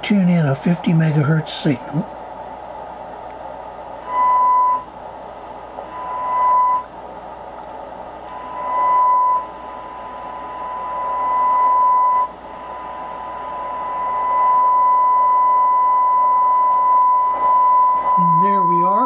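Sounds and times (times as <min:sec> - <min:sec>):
radio hiss: 0:00.0 - 0:06.3
high test tone from radio speaker: 0:03.9 - 0:05.0, 0:05.7 - 0:07.0, 0:08.2 - 0:19.0.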